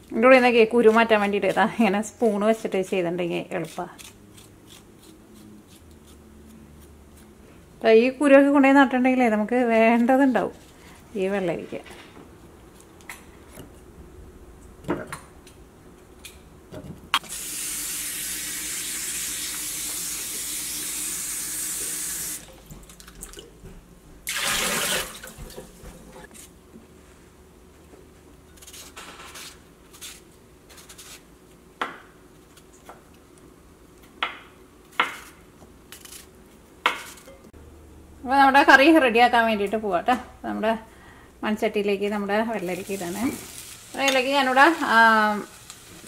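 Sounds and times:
knife cutting cucumber: 0:00.3 - 0:07.3
faucet running: 0:17.3 - 0:22.5.

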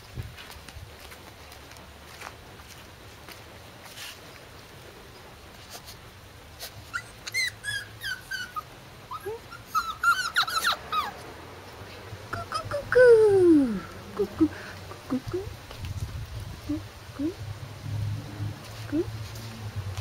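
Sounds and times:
puppies whining and yipping: 0:06.8 - 0:11.3.

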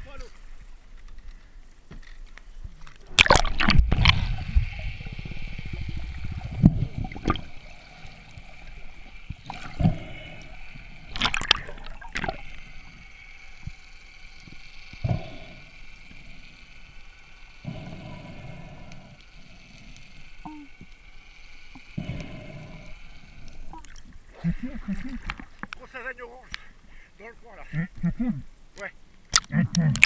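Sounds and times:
underwater bubbling and gurgling: 0:02.5 - 0:25.8
splash into water: 0:03.1 - 0:04.3, 0:11.1 - 0:12.4.

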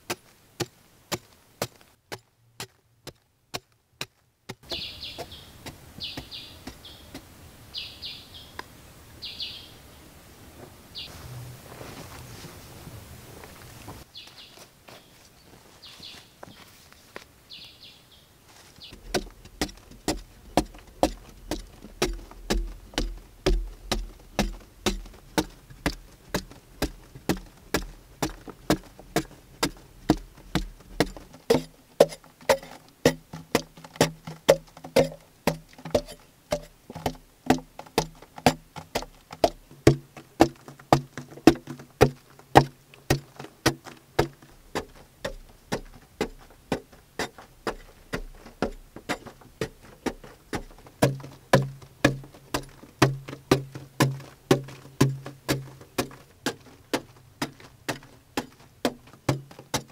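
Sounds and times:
digging tool striking hard earth: 0:00.0 - 0:07.4, 0:18.9 - 0:59.9.

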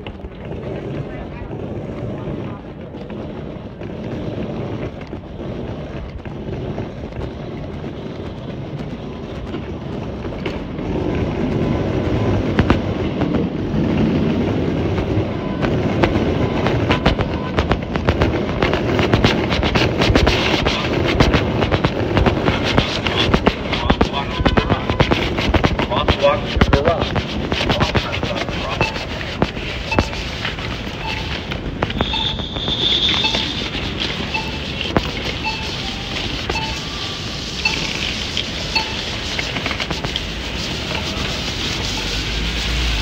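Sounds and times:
suitcase wheels rolling on paving: 0:00.0 - 0:43.0
wheels clicking over paving joints: 0:00.0 - 0:43.0.

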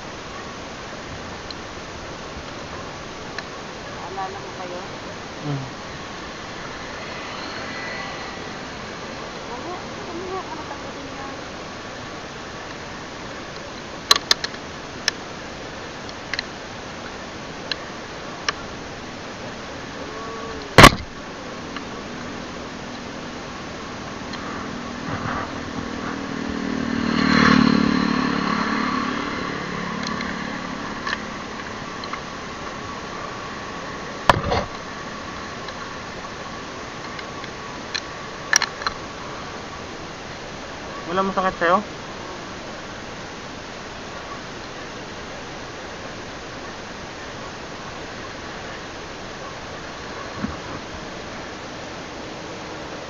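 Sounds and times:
faint high steady tone: 0:00.0 - 0:26.3, 0:27.4 - 0:53.0
steady background noise: 0:00.0 - 0:53.0
steady hiss: 0:00.0 - 0:53.0
loud thump: 0:20.8 - 0:21.1.

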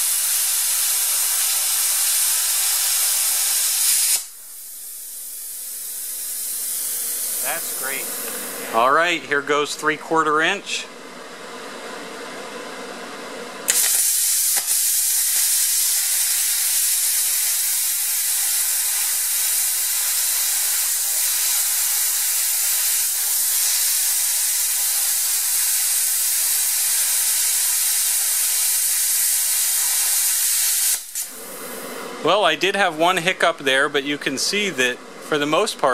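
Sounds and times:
plasma arc hissing: 0:00.0 - 0:08.8, 0:13.7 - 0:31.8
plasma cutter hum: 0:00.0 - 0:09.2, 0:13.7 - 0:31.9.

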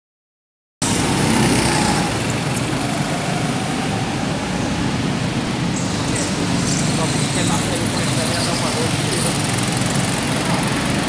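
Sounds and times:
go-kart engines running: 0:00.8 - 0:11.0.

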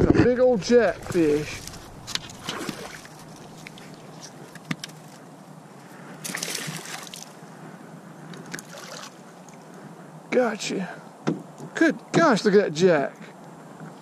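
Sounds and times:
water sloshing and splashing: 0:00.7 - 0:05.3, 0:06.2 - 0:07.4, 0:08.4 - 0:09.6.

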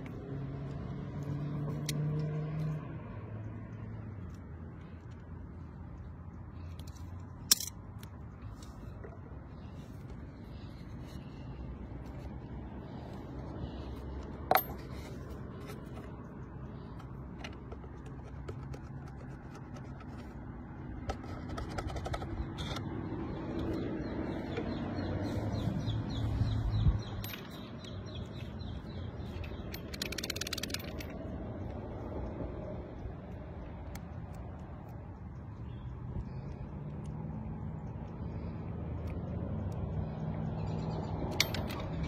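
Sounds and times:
low background rumble: 0:02.8 - 0:21.4
plastic bottle and padlock handled: 0:17.0 - 0:22.9.

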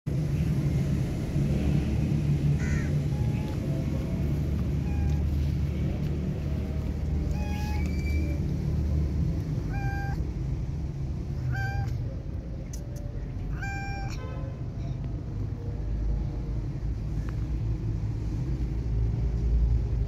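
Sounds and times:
steady low rumble: 0:00.1 - 0:20.0
harsh caw-like call: 0:02.6 - 0:03.0.

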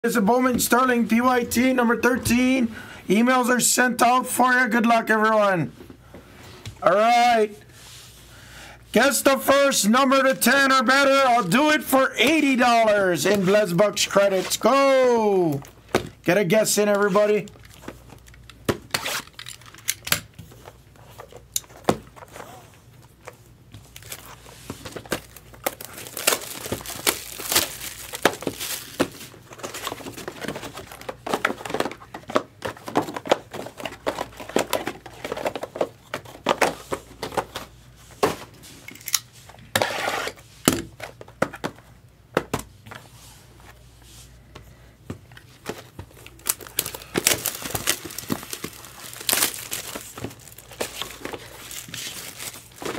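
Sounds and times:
packaging crinkling and tearing: 0:23.9 - 0:32.2, 0:46.1 - 0:52.9.

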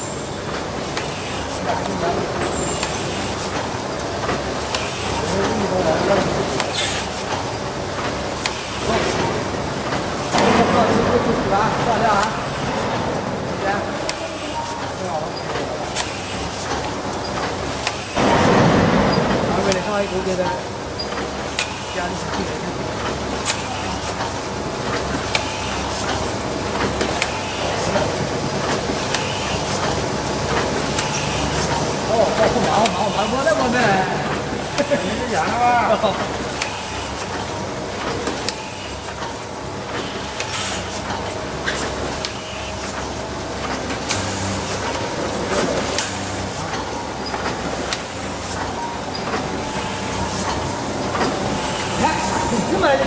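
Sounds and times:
sharp mechanical clicks and knocks: 0:01.7 - 0:14.2, 0:15.5 - 0:22.4, 0:24.2 - 0:27.4, 0:45.9 - 0:49.8.

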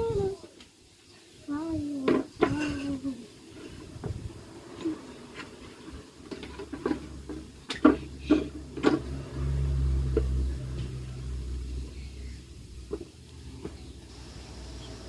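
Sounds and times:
steady low rumble: 0:03.8 - 0:04.7, 0:08.1 - 0:15.0.

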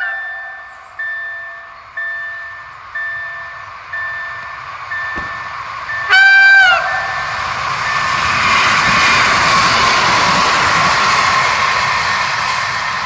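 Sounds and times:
level-crossing warning bell: 0:00.0 - 0:13.0
train running noise: 0:00.0 - 0:13.0
train horn blast: 0:05.9 - 0:07.4.

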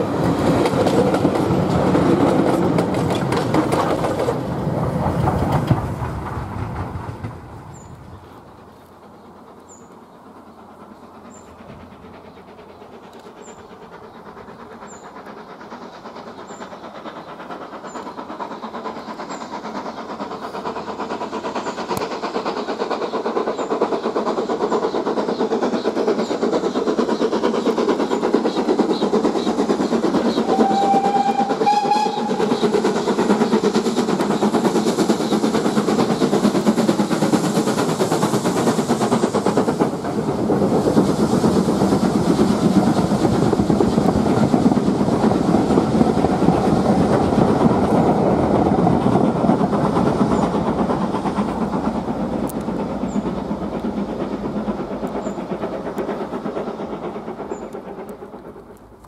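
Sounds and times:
steam train passing at speed: 0:00.0 - 0:59.0
steam whistle blast: 0:30.4 - 0:32.5.

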